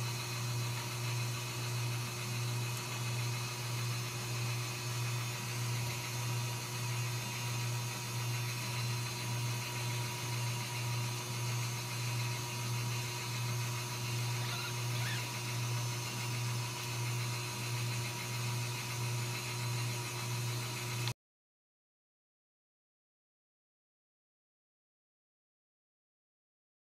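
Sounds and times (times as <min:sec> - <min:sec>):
kittens squeaking: 0:14.3 - 0:15.4.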